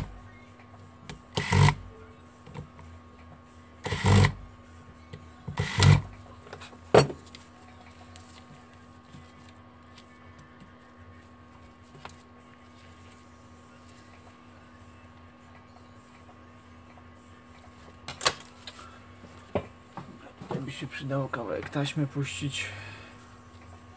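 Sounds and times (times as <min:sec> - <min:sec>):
electric screwdriver running: 0:01.3 - 0:01.8, 0:03.8 - 0:04.4, 0:05.6 - 0:06.1.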